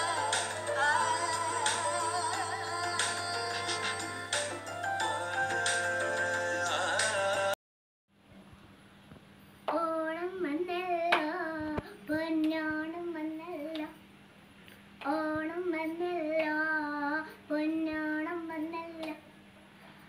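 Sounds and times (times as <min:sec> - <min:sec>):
girl singing unaccompanied: 0:00.0 - 0:04.6, 0:09.7 - 0:14.0, 0:15.0 - 0:19.3.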